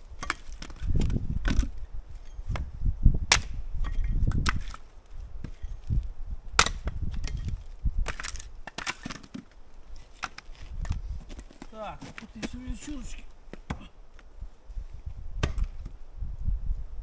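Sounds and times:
axe chopping firewood: 0.1 - 1.8, 2.5 - 4.8, 6.6 - 14.0, 15.4 - 16.0
wood splitting thud: 0.2 - 1.8, 3.3 - 4.8, 6.6 - 9.5, 10.2 - 13.9, 15.4 - 16.0.

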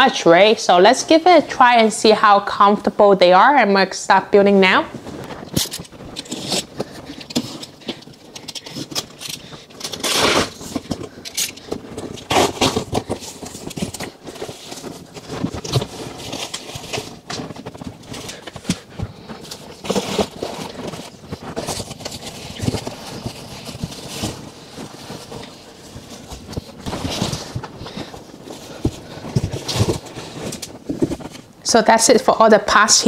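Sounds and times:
plastic wrap crinkling: 4.7 - 33.0
cardboard box flaps rustling: 10.0 - 31.6.

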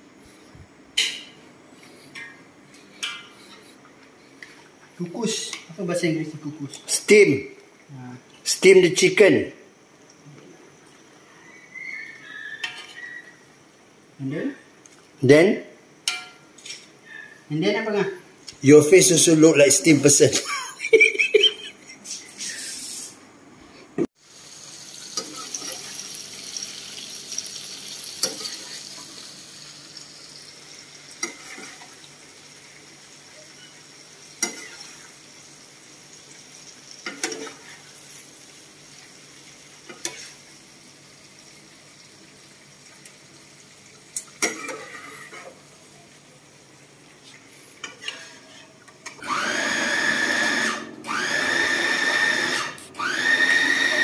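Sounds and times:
food frying in hot oil: 24.2 - 48.4
electric food chopper whining: 49.2 - 54.0.

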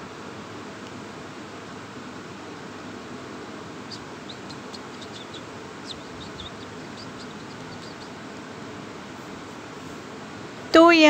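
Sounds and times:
steady background hiss: 0.0 - 11.0
small bird chirping: 3.7 - 8.3.

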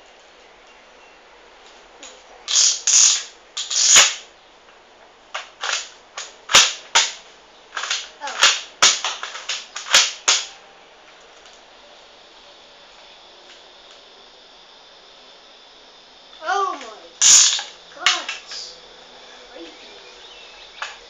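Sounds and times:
toy gun plastic clacks and snaps: 5.4 - 7.2, 7.8 - 10.5, 17.2 - 18.6.

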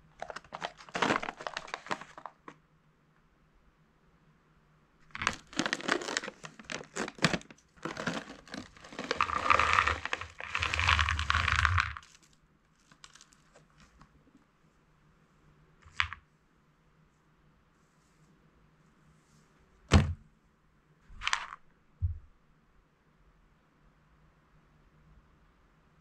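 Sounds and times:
plastic snack bag crinkling: 0.0 - 2.6, 5.1 - 13.8
peanuts rattling onto plate: 5.2 - 12.3.

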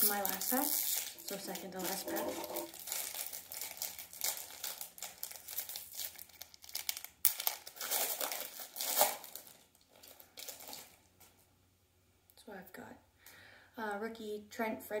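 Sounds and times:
card pack wrapper crinkling and tearing: 0.0 - 11.0.

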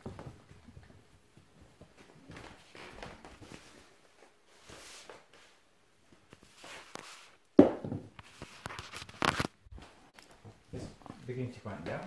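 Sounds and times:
puppies scuffling and pawing: 0.0 - 5.3.

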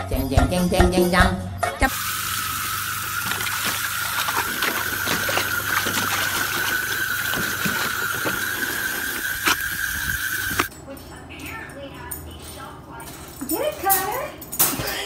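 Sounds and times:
music: 0.0 - 1.9
faint splashes: 1.9 - 10.7
garden hose spraying water: 1.9 - 10.7.

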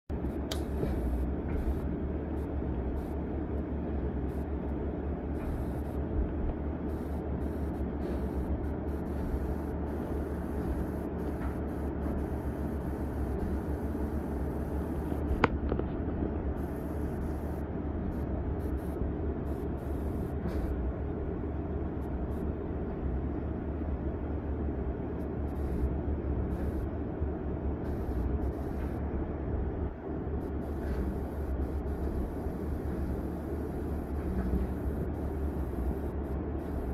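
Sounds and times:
excavator diesel engine running: 0.1 - 36.9
sharp click: 0.5 - 0.8.

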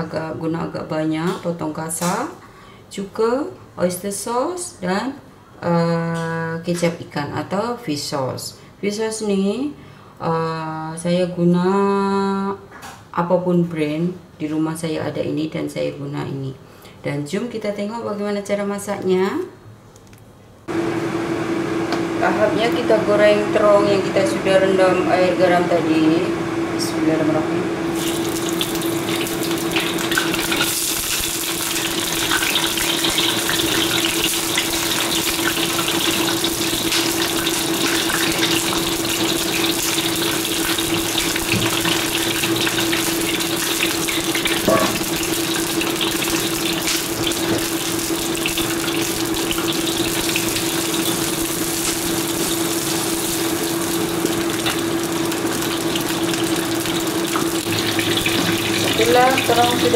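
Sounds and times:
steady hum: 20.6 - 31.9
eggplant frying in hot oil: 27.9 - 59.9.

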